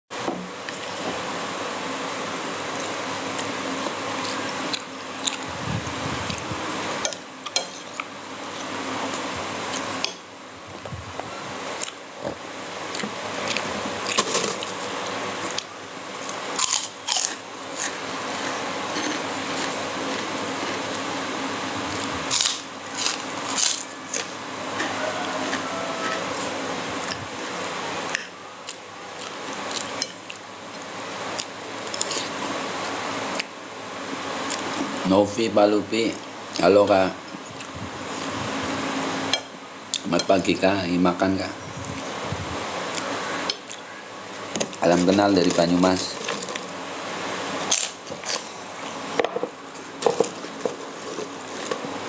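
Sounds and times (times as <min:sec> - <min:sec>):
steady background hiss: 0:00.1 - 0:52.0
person chewing: 0:02.7 - 0:06.5, 0:12.9 - 0:21.0, 0:21.8 - 0:27.3.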